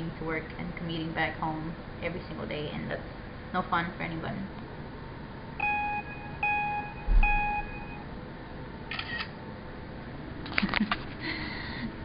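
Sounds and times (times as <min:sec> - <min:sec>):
electronic beeps: 0:05.6 - 0:08.0.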